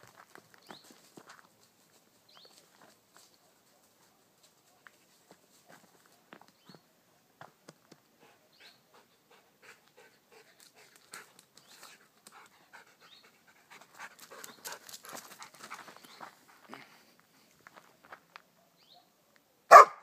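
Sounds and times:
footsteps on gravel: 0.0 - 3.4, 14.7 - 18.4
dog panting: 8.2 - 16.0.

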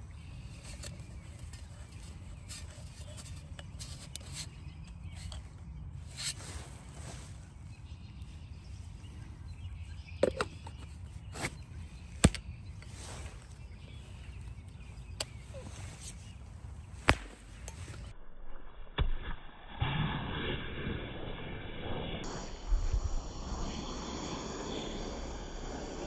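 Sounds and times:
low steady background rumble: 20.7 - 26.0.

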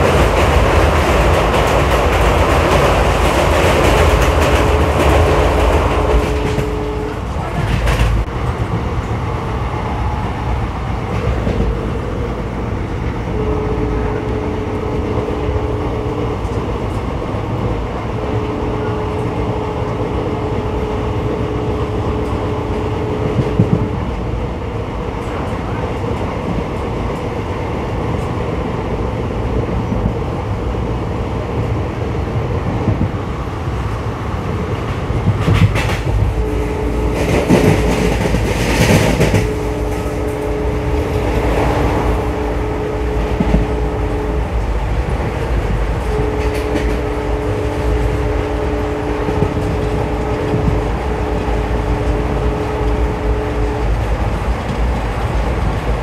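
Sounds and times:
rail clicks: 0.0 - 56.0
train wheels rumbling on rails: 0.0 - 56.0
two-note tone: 13.3 - 16.7, 39.0 - 44.9, 45.9 - 54.1.

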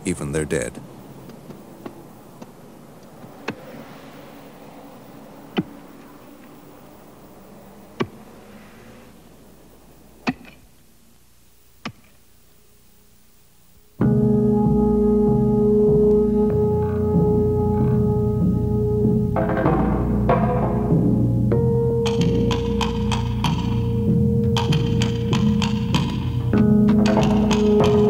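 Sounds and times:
faint hiss: 0.0 - 19.1.

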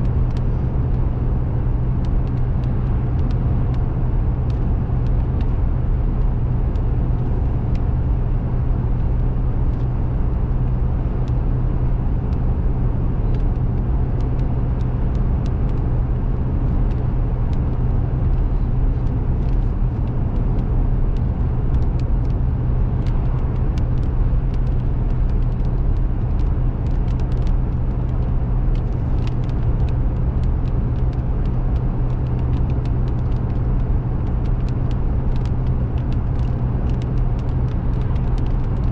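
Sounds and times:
car engine and tyres droning: 0.0 - 38.9
small sharp ticks: 23.0 - 38.9.

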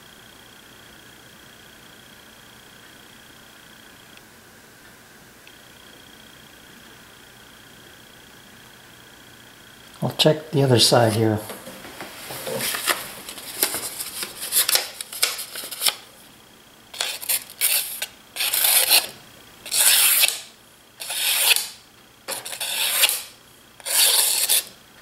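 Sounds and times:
paper crinkling: 12.2 - 16.1, 17.0 - 19.1
knife slicing through paper: 12.5 - 16.0, 17.0 - 19.1, 19.7 - 21.7, 22.3 - 24.7.

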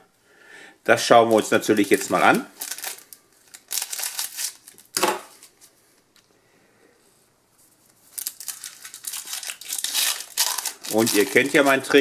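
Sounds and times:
foil wrapper crinkling: 1.8 - 5.7, 8.1 - 12.0.

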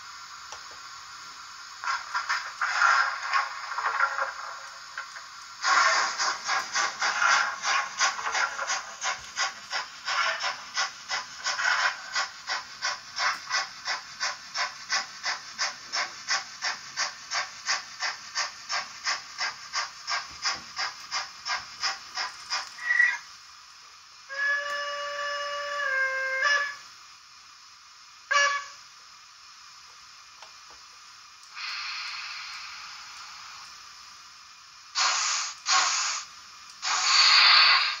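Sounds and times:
model locomotive steam chuffing: 0.0 - 38.0
steam hiss: 0.0 - 38.0
train whistle blast: 24.3 - 26.9, 28.3 - 28.9.

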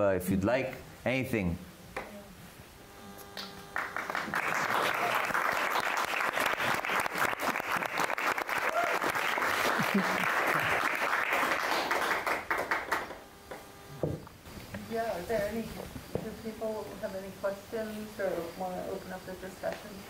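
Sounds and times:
audience applause: 3.8 - 13.2.

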